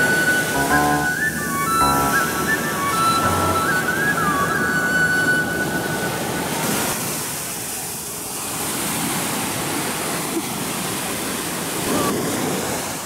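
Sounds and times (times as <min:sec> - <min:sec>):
small waves breaking on sand: 0:08.3 - 0:13.0.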